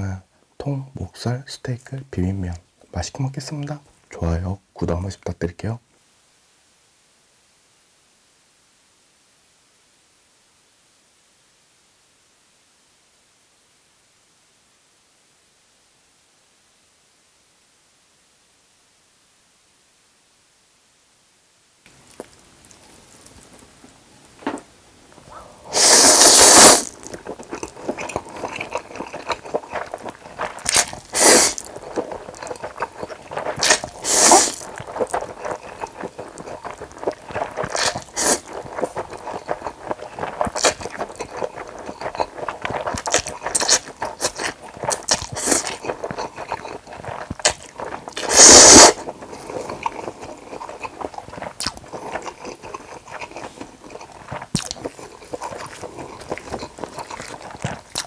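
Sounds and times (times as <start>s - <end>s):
wet chewing and smacking: 21.9s - 24.4s, 25.1s - 58.0s
loud noodle slurps: 25.2s - 58.0s.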